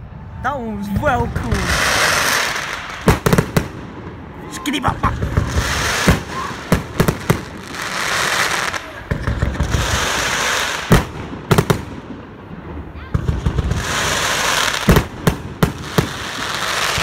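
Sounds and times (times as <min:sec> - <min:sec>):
crackling hiss of fireworks: 0:00.2 - 0:17.0.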